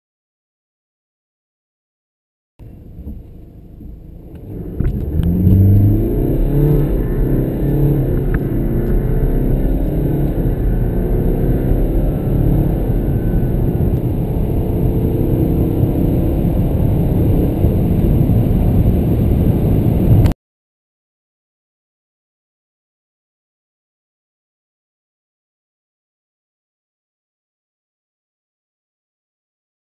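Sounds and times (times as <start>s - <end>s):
car engine accelerating: 2.6s - 20.4s.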